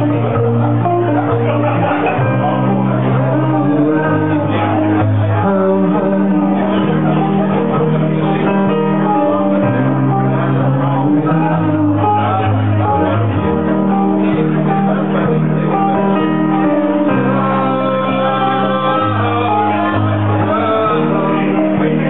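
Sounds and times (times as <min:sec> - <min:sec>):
electric keyboard: 0:00.0 - 0:22.0
person singing: 0:00.0 - 0:22.0.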